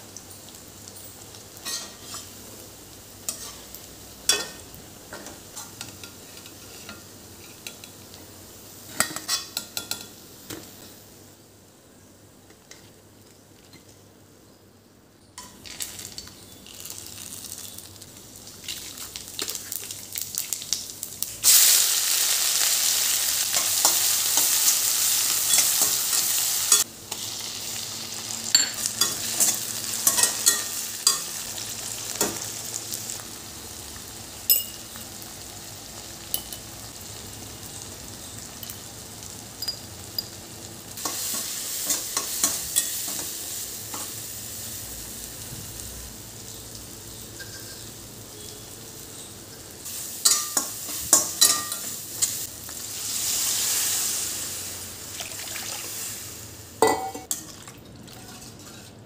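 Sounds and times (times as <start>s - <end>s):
vegetables sizzling in hot oil: 0.0s - 11.1s, 15.4s - 57.4s
metal spatula scraping pan: 58.2s - 59.0s.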